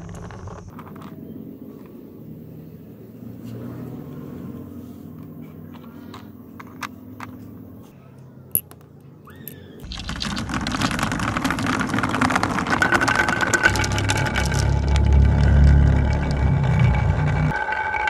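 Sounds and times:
glass marbles rattling down track: 9.4s - 18.0s
low steady rumble: 12.8s - 17.5s.

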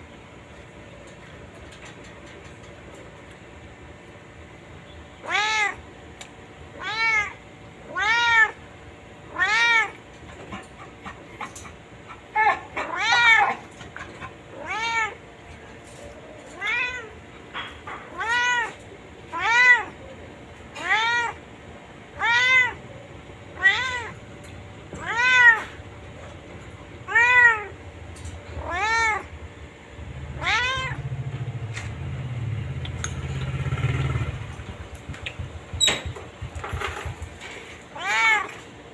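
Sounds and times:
cat meowing: 5.2s - 5.8s, 6.8s - 8.6s, 9.3s - 10.0s, 12.3s - 13.8s, 14.5s - 15.2s, 16.5s - 17.2s, 17.8s - 20.0s, 20.7s - 21.4s, 22.1s - 22.9s, 23.5s - 24.2s, 24.9s - 25.8s, 27.0s - 27.8s, 28.5s - 29.3s, 30.4s - 31.1s, 37.9s - 38.6s.

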